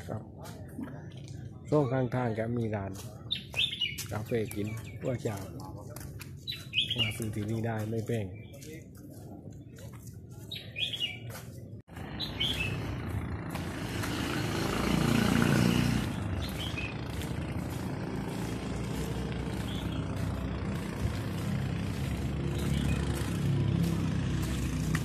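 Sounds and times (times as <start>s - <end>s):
bird chirps: 1.6s - 5.5s, 6.3s - 8.9s, 9.6s - 11.3s, 12.0s - 13.0s, 15.4s - 23.6s
engine running: 11.9s - 25.0s.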